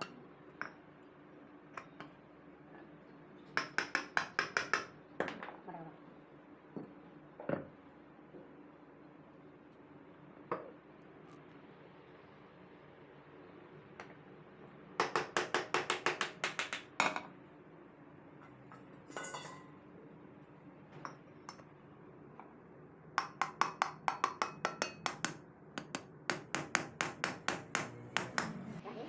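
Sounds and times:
metal hammer tapping metal: 3.6 - 4.9, 23.2 - 28.6.

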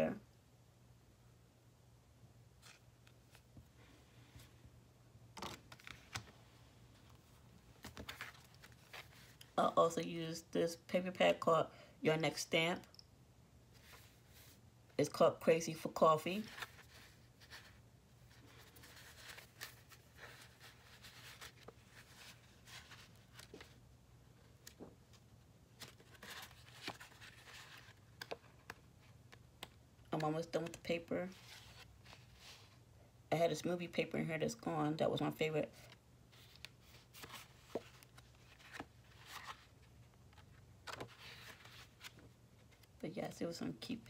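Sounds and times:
low steady hum: 0.0 - 44.0
paper rustling: 5.4 - 9.5, 16.4 - 23.8, 25.8 - 29.7, 35.8 - 42.9.

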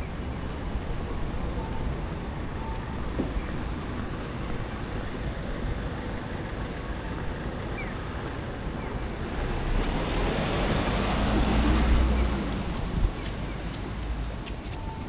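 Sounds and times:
city ambience: 0.0 - 15.0
wind on microphone: 10.3 - 14.2.

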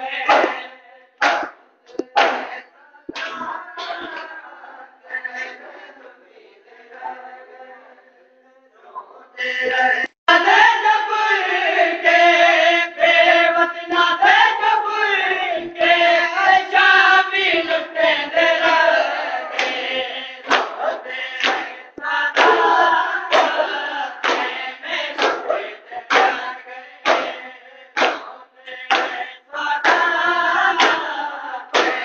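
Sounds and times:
men chanting a lament: 0.0 - 32.0
strong singing voice: 0.0 - 32.0
hands slapping chests: 0.3 - 3.4, 19.5 - 30.2, 30.8 - 32.0.

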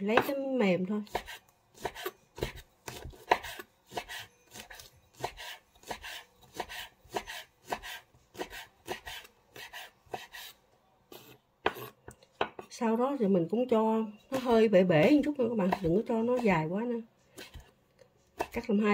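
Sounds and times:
knife chopping on wooden board: 1.1 - 10.5, 11.6 - 12.7, 14.3 - 16.6, 17.4 - 17.7, 18.4 - 18.6.

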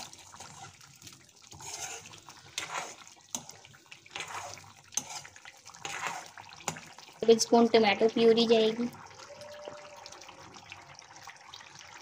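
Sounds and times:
liquid bubbling and sloshing: 0.0 - 7.4, 8.8 - 12.0.

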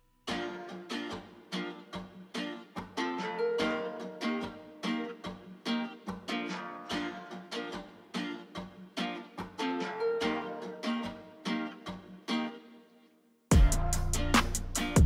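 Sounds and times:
plucked string music: 0.2 - 15.0
music with drum hits: 13.5 - 15.0.

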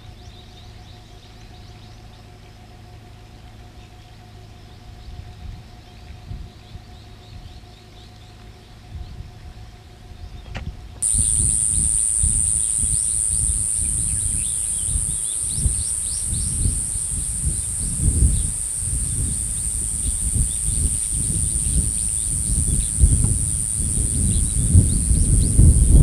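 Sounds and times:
wind buffeting microphone: 10.2 - 26.0
high-pitched insect drone: 11.0 - 26.0
insect chirps: 11.0 - 26.0.

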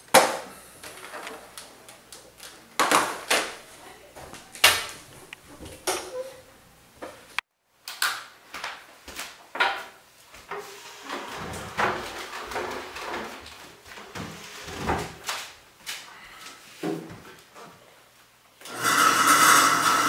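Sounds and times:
objects knocking and clunking: 9.6 - 15.3
wooden chairs moved: 10.4 - 15.4.

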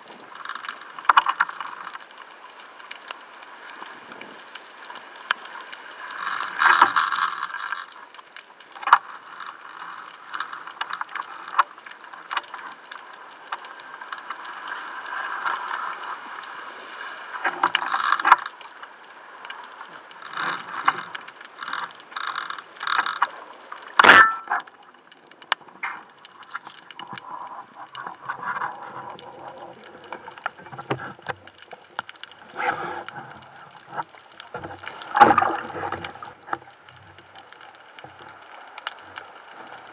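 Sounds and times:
underwater handling clicks and knocks: 29.8 - 36.7.

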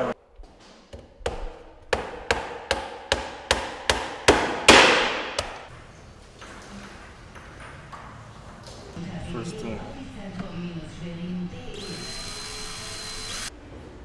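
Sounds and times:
hammer striking wooden frame: 0.9 - 5.7.

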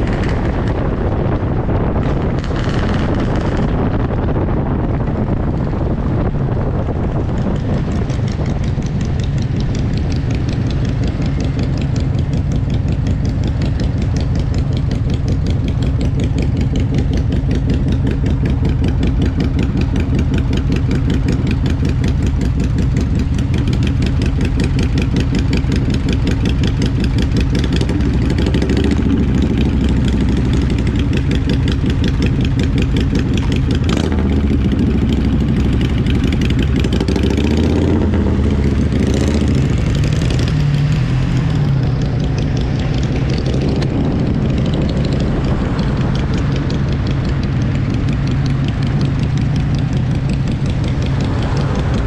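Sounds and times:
motorcycle engine running: 0.0 - 52.0.

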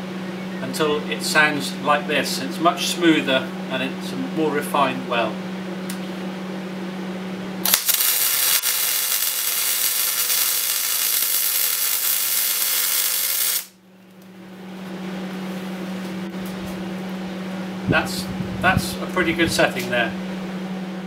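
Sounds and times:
steady low hum: 0.0 - 21.0
welding arc crackling: 7.6 - 13.8.

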